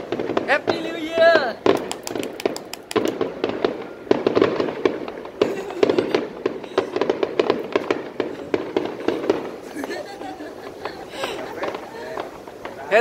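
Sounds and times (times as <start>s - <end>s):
fireworks bursting: 0.0s - 13.0s.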